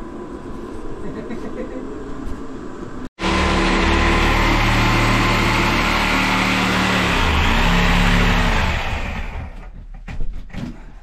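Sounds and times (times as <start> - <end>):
power drill running: 3.2 - 9.6.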